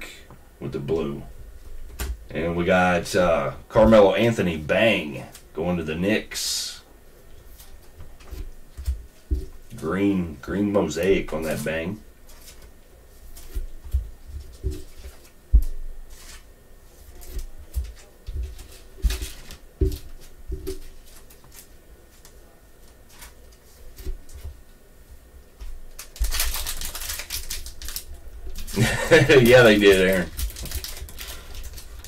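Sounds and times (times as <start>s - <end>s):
foil pack tearing open: 26.0s - 32.0s.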